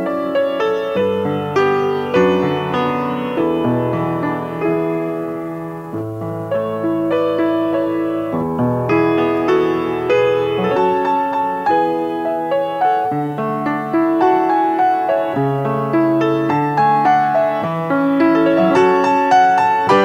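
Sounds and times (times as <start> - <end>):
grand piano playing: 0.0 - 20.0.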